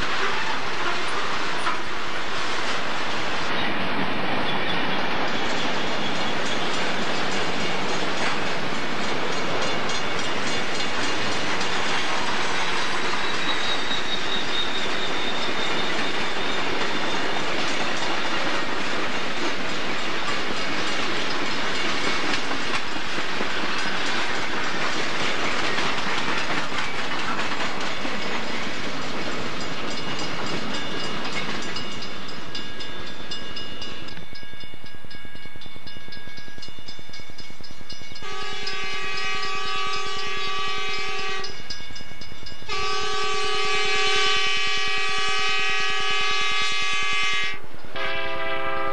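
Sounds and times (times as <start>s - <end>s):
freight train rolling past: 0.0s - 48.9s.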